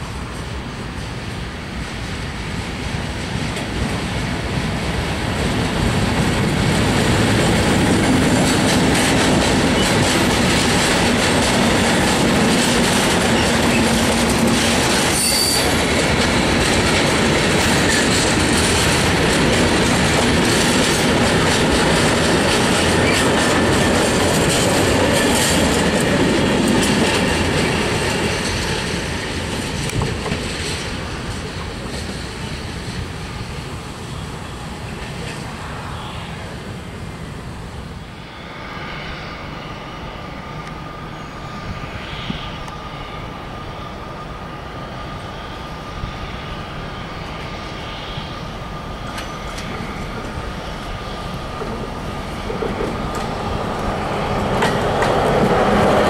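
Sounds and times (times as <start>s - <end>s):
freight train passing: 0.0s - 56.0s
wheels clattering over rail joints: 5.4s - 33.1s
high wheel squeal: 15.0s - 15.9s, 38.0s - 51.4s.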